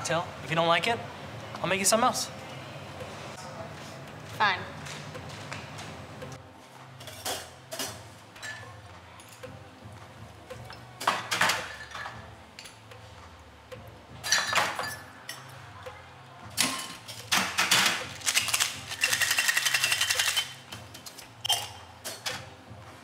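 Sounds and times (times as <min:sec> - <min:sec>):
glass bottles and shaker tins clinking: 0:14.2 - 0:15.5, 0:16.6 - 0:22.4
ice rattling in cocktail shaker: 0:18.2 - 0:20.6.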